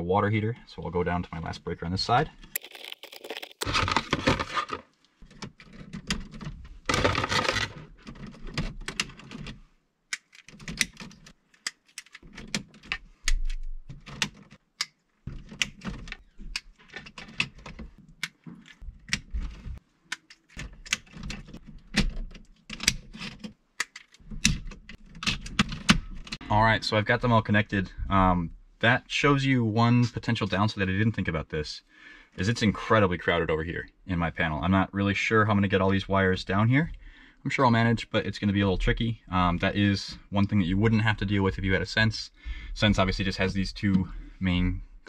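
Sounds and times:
small plastic clicks: 10.1 - 19.3.

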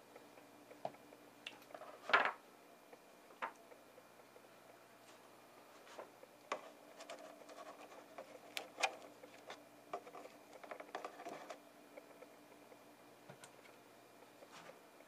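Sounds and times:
faint steady hum: 0.0 - 15.0
fingertip clicks and scratches: 6.5 - 12.2.

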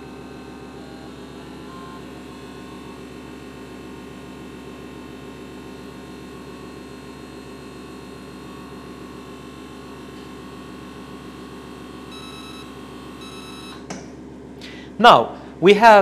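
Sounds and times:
machine hum: 0.0 - 16.0
short electronic beep: 12.1 - 13.8.

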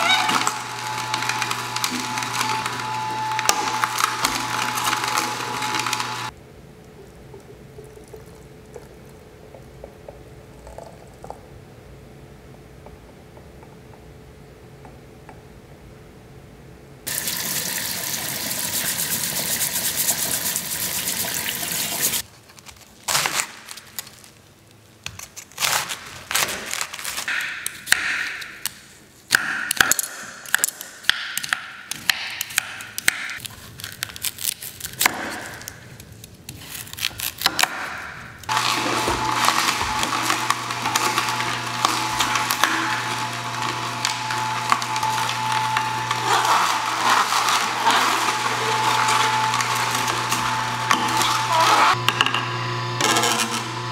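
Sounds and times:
juicer motor humming: 0.0 - 6.4, 17.1 - 22.2, 38.4 - 53.9
running water: 17.1 - 22.2
peeler scraping on wooden board: 38.8 - 52.0.

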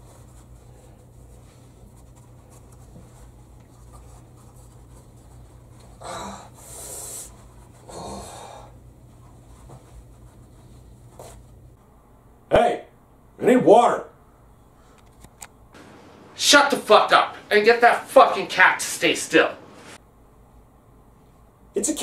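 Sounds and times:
faint low hum: 0.0 - 18.6.

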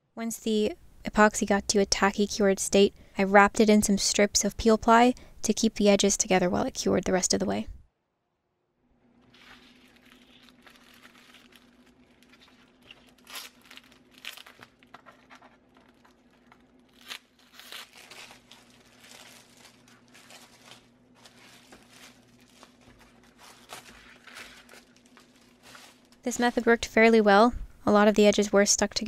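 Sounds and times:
sharp foil crackles: 9.2 - 26.6
foil and plastic crinkling: 9.2 - 26.8.

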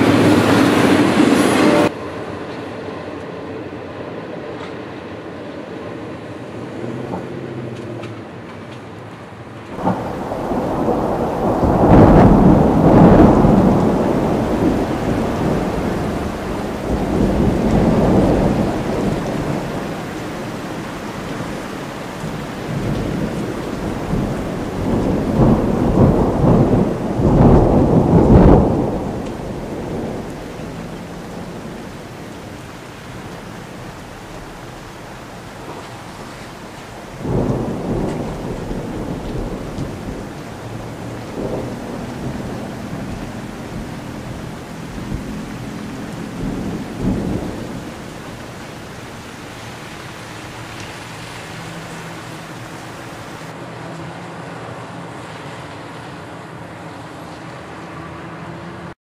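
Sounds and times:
rain hissing: 0.0 - 1.9, 9.6 - 53.6
thunder rolling: 0.0 - 1.9, 9.7 - 53.5.

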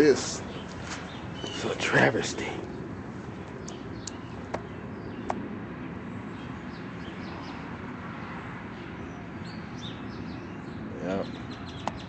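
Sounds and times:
outdoor background hum: 0.0 - 12.0
light clicks: 3.6 - 4.6.

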